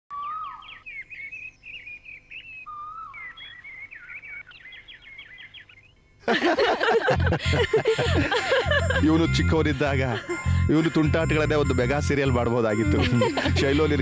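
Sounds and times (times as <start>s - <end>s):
small birds chirping: 0.1s - 6.3s
loud background music: 12.9s - 14.0s.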